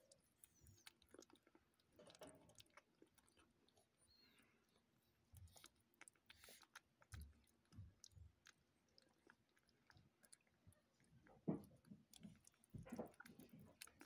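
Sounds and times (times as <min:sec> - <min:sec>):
kitten chewing wet food: 0:00.0 - 0:14.0.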